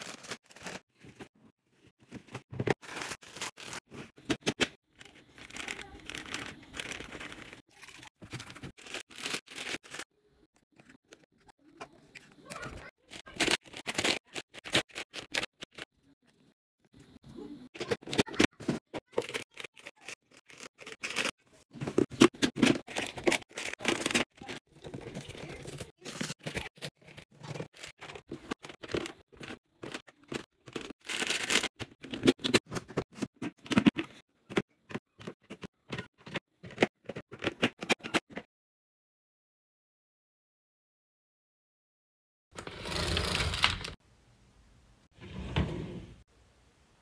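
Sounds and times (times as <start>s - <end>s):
packaging crinkling: 30.7s - 31.8s.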